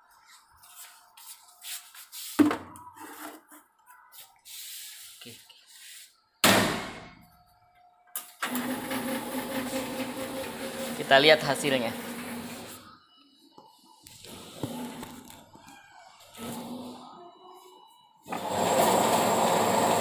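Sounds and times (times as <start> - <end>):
paint can knocks and clunks: 2.4 - 3.4.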